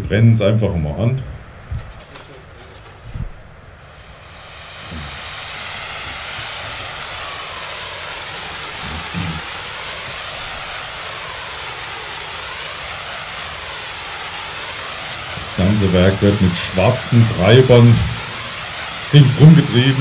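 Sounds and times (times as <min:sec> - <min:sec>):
low thumps: 0:01.2 - 0:03.8
firework wheel hissing: 0:01.3 - 0:20.0.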